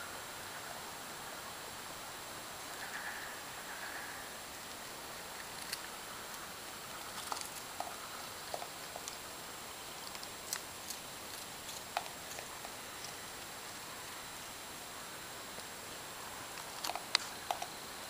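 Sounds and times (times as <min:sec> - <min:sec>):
steady hiss: 0:00.0 - 0:18.0
raccoon crunching crackers: 0:05.1 - 0:13.8, 0:16.4 - 0:17.8.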